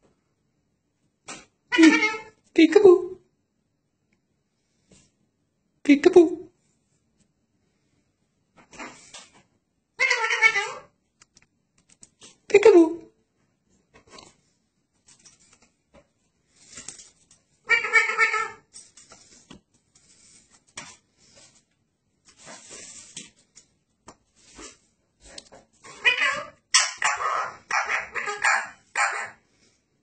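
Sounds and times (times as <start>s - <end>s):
parakeet squawking: 1.7s - 2.3s, 10.0s - 10.8s, 17.7s - 18.6s, 25.9s - 29.4s.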